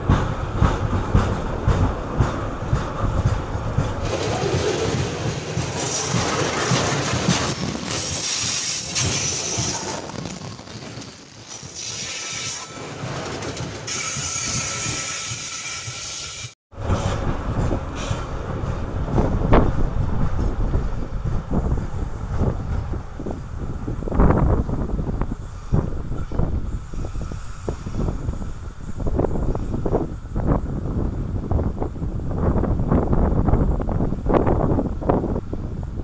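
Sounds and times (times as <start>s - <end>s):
wheels clattering over rail joints: 0.0s - 25.0s
freight train rumble: 0.0s - 36.0s
steel wheels hissing: 3.6s - 18.8s, 23.3s - 31.1s.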